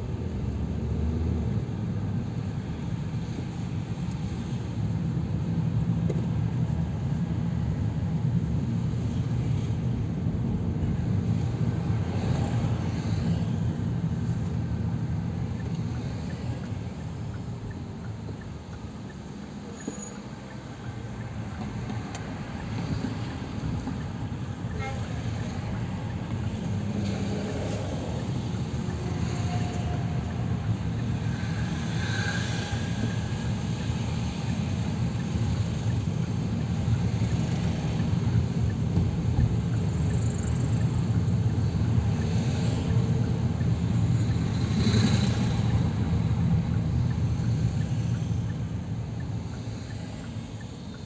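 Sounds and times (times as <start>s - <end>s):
car engine and road rumble: 0.0s - 51.0s.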